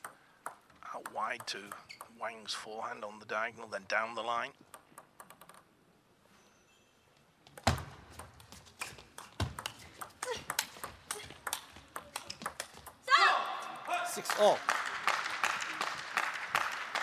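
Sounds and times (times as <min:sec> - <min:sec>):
table tennis ball clicking: 0:00.0 - 0:02.1, 0:04.7 - 0:05.7, 0:09.2 - 0:13.0.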